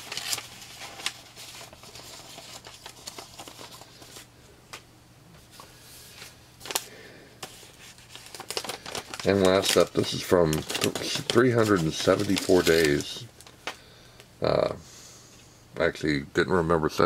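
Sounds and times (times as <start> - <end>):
paper and cards rustling: 0.0 - 4.3, 5.4 - 13.8.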